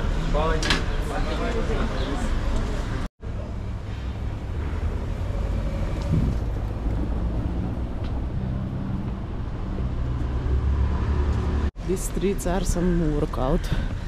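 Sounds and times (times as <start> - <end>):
traffic rumble: 0.0 - 14.0
wind on microphone: 5.9 - 8.0.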